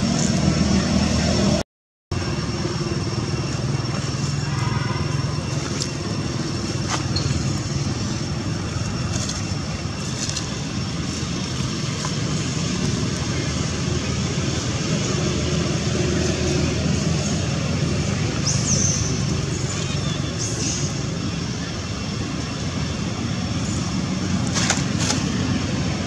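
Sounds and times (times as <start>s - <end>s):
vehicle engine droning: 0.0s - 26.0s.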